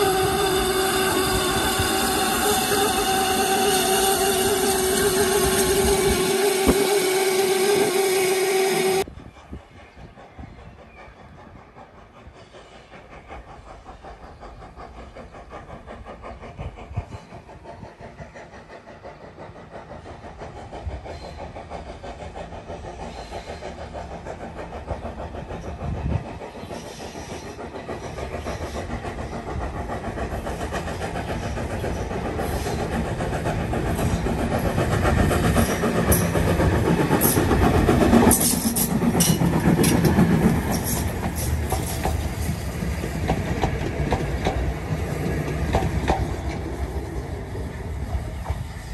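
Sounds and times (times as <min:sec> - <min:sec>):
steam hissing: 0:00.0 - 0:09.2, 0:09.8 - 0:48.9
steam locomotive chuffing: 0:00.0 - 0:48.9.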